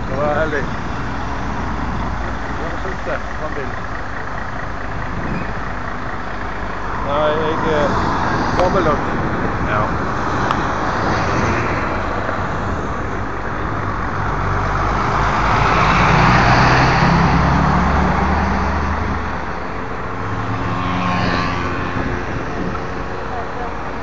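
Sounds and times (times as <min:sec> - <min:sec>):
steady traffic noise: 0:00.0 - 0:24.0
vehicle driving past: 0:14.3 - 0:19.5, 0:20.3 - 0:22.7.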